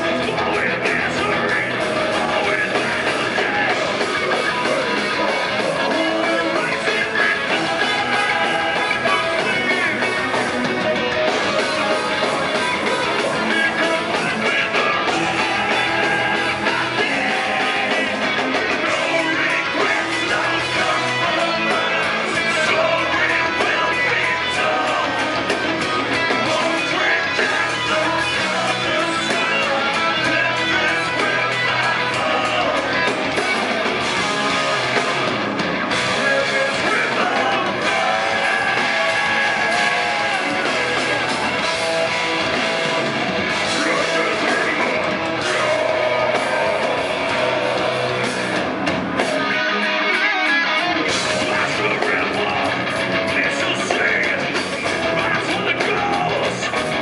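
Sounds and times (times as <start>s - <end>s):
distorted electric guitars: 0.0s - 57.0s
drums: 0.0s - 57.0s
person singing into a microphone: 12.0s - 33.1s, 36.1s - 41.5s, 51.1s - 54.6s.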